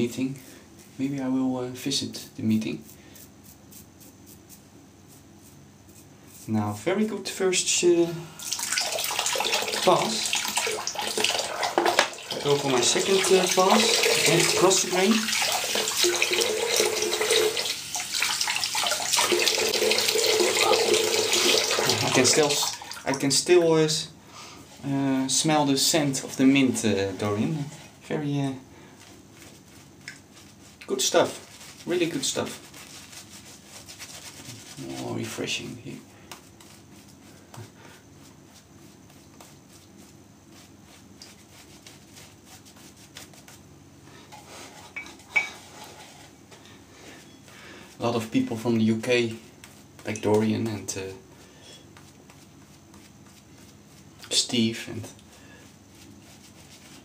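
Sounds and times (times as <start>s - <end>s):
tap running into sink: 11.2s - 12.2s.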